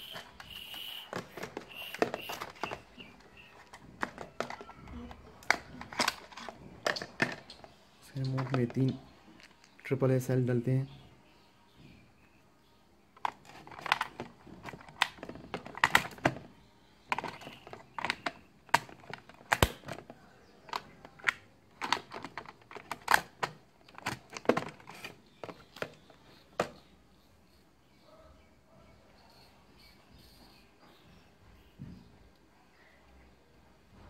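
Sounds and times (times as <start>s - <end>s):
batteries clicking into compartment: 0.1s - 9.8s, 13.2s - 16.4s, 17.1s - 26.0s.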